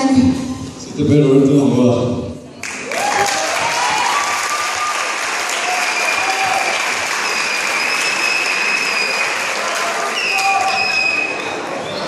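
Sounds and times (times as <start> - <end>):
audience clapping: 2.6 - 12.0
high-pitched cheers: 2.7 - 12.0.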